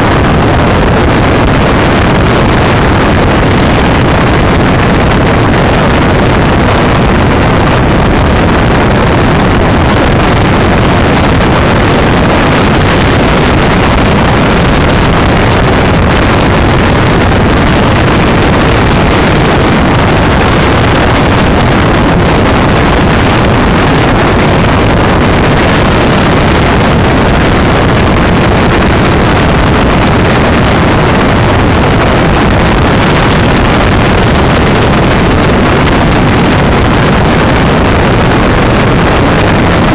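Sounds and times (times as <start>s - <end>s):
rolling road noise: 0.0s - 39.9s
wind rush: 0.0s - 39.9s.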